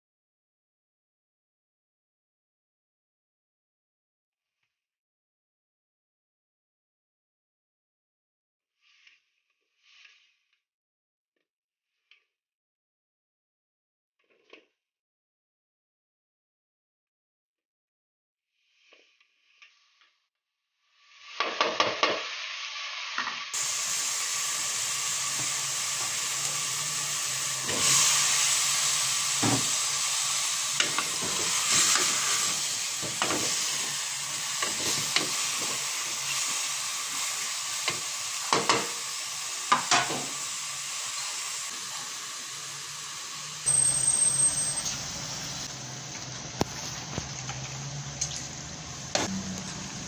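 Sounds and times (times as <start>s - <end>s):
meat sizzling in a pot: 20.8s - 50.0s.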